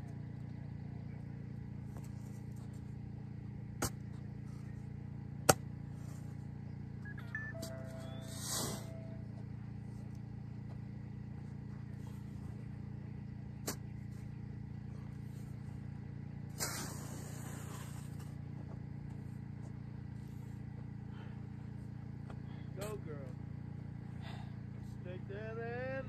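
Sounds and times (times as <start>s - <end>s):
shovel scraping sandy soil: 13.6s - 14.3s, 16.5s - 18.4s.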